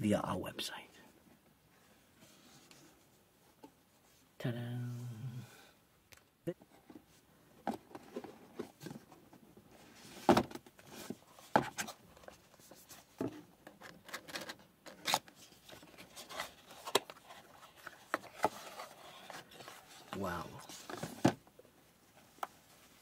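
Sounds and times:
box flap opening: 13.8 - 17.2.

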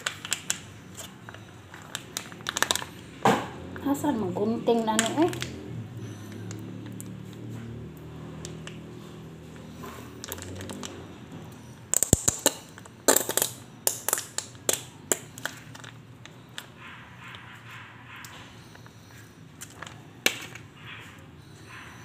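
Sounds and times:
plastic pouch crinkling: 0.0 - 3.1, 4.8 - 5.6, 10.0 - 10.9, 11.9 - 16.7.

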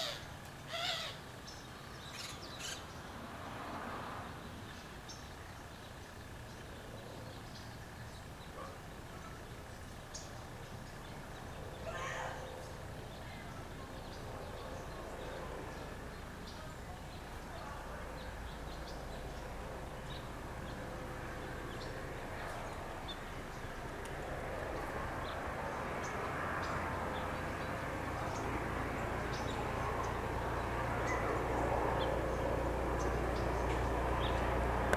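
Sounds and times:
bird call: 0.0 - 1.2
traffic rumble: 0.0 - 34.9.

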